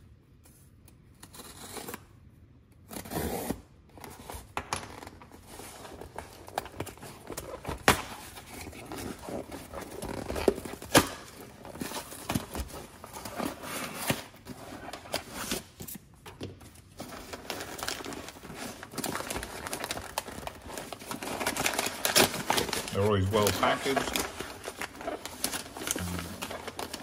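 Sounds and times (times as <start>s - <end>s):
paper packing crinkling: 5.0s - 16.0s, 16.6s - 27.0s
cardboard box tearing: 17.3s - 27.0s.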